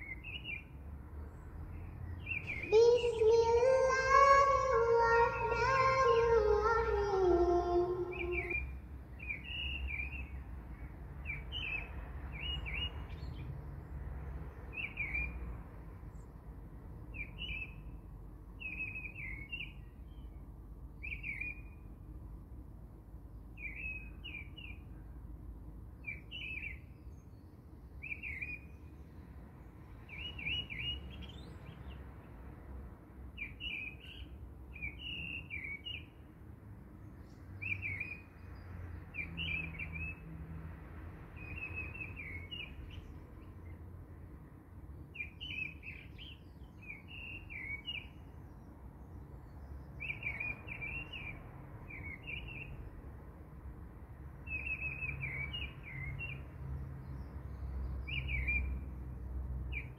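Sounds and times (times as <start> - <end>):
birds chirping: 1.7 - 13.4.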